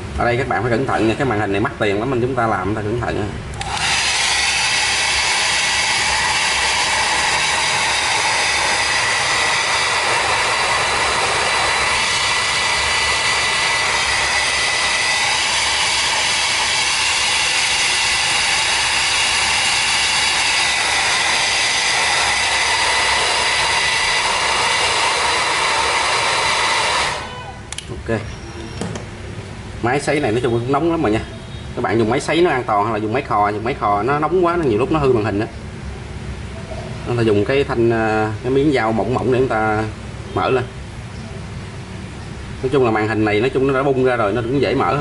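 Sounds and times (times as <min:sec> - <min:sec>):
hair dryer running: 0:03.6 - 0:27.5.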